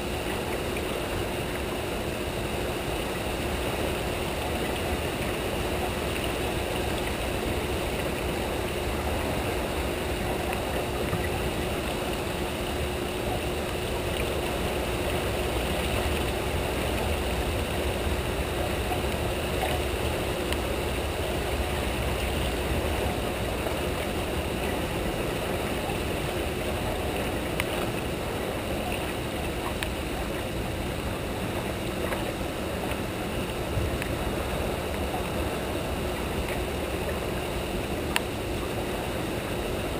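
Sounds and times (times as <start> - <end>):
faint steady hum: 0.0 - 39.9
turbulent water churning: 0.0 - 39.9.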